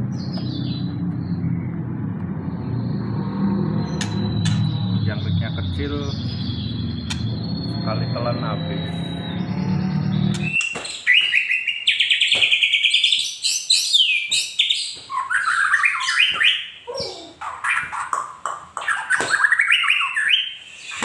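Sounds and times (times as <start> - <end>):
songbird singing varied song: 3.7 - 17.6.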